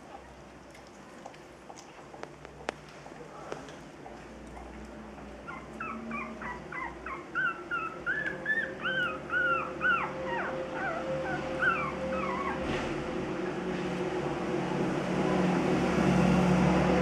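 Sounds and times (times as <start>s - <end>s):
puppies whimpering: 5.2s - 12.7s.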